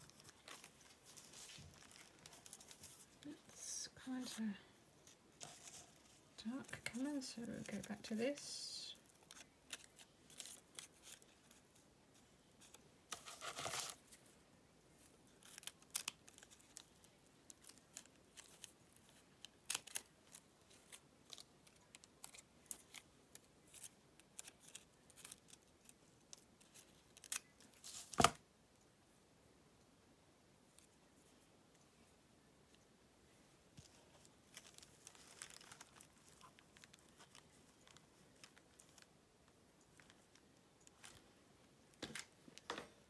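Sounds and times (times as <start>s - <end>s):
fabric rustle: 0.0s - 3.5s.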